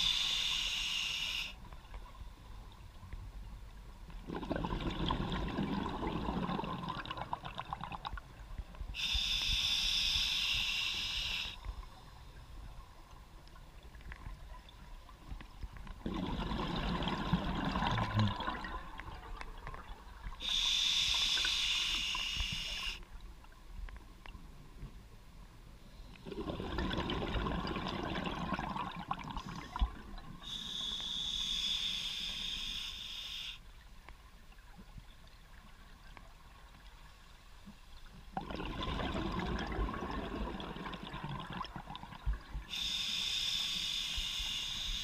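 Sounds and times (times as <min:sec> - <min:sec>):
regulator inhalation hiss: 0:00.0 - 0:01.6, 0:09.0 - 0:11.6, 0:20.4 - 0:23.0, 0:30.4 - 0:33.6, 0:42.7 - 0:45.0
exhaled bubbles gurgling underwater: 0:04.1 - 0:09.0, 0:13.7 - 0:20.5, 0:26.2 - 0:30.6, 0:38.3 - 0:42.9.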